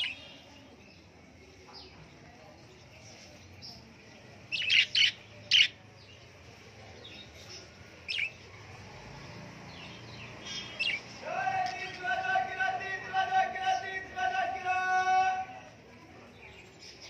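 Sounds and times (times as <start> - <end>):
budgerigars chirping: 4.5 - 5.8, 8.1 - 8.4, 9.9 - 11.2.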